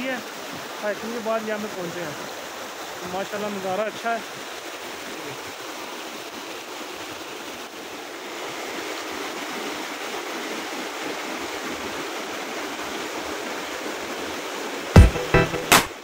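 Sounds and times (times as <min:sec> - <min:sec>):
stream rushing over boulders: 0:00.0 - 0:16.0.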